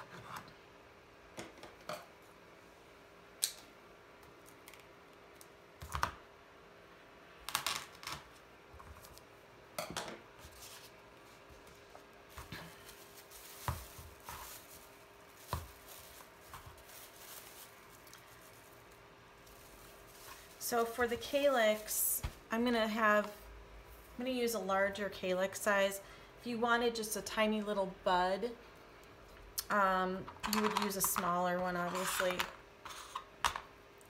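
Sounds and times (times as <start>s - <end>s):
plastic wrap crinkling: 10.4s - 22.4s.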